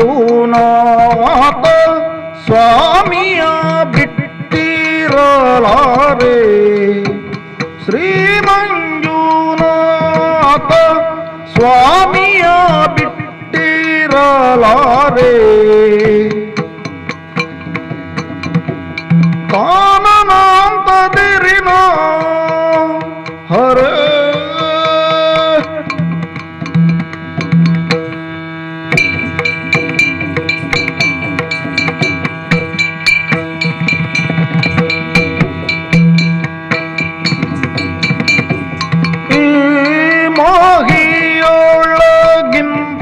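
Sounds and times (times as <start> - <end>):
person singing: 0.0 - 16.7, 19.5 - 26.1, 38.6 - 43.0
rhythmic hand-drum strokes: 0.0 - 43.0
steady drone: 0.0 - 43.0.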